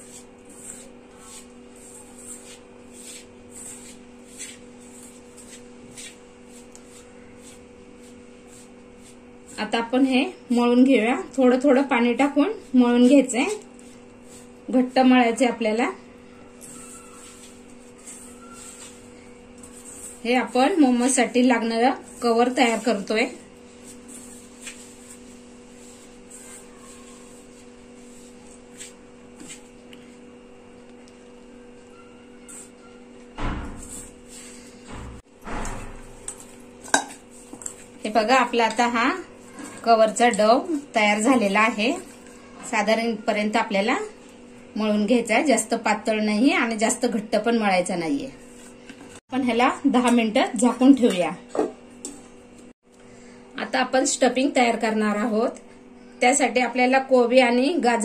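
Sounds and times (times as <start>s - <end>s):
hands kneading dough: 0.0s - 11.2s, 16.3s - 30.3s
fingers mixing flour in steel bowl: 0.0s - 30.1s, 36.1s - 44.4s.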